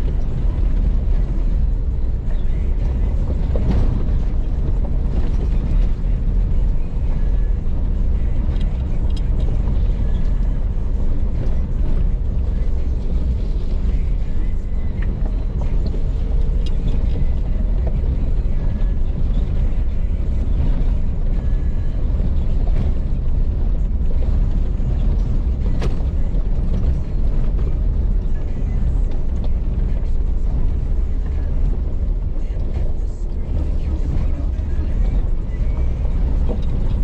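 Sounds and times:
off-road vehicle rumbling: 0.0 - 37.0.

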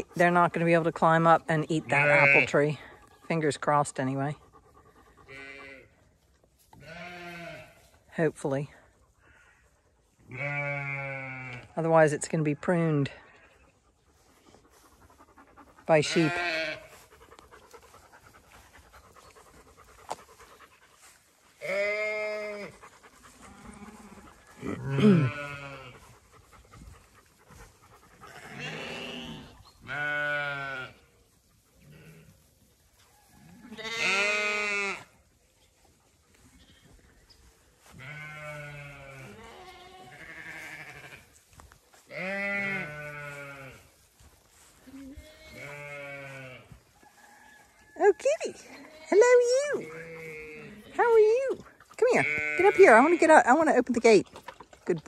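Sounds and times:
sheep bleating: 1.6 - 2.8, 5.3 - 5.9, 6.8 - 7.9, 10.3 - 11.7, 15.9 - 17.0, 21.6 - 22.8, 23.4 - 26.0, 28.3 - 31.0, 33.5 - 35.1, 37.9 - 41.3, 42.1 - 43.9, 44.8 - 46.8, 48.6 - 51.4, 52.0 - 53.7.

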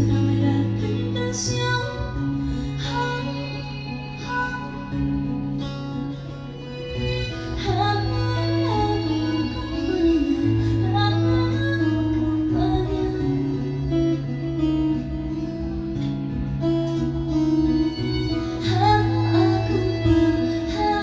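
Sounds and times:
live band with guitars: 0.0 - 21.0.

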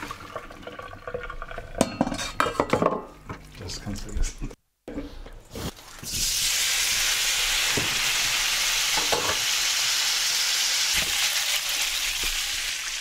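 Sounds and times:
pasta sizzling in a pan: 5.6 - 13.0.

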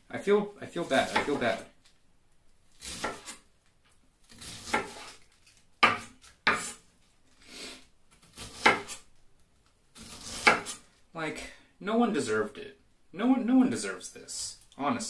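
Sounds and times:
knife slicing cabbage: 0.8 - 1.6, 2.7 - 3.5, 4.3 - 6.9, 7.5 - 9.1, 10.0 - 10.9.

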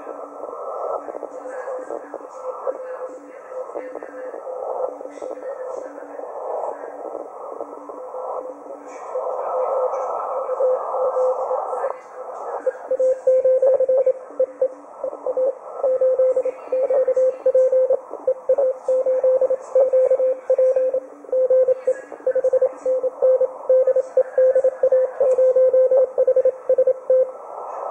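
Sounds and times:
shortwave radio hiss: 0.0 - 27.9
faint lower-pitched morse code: 9.1 - 27.9.

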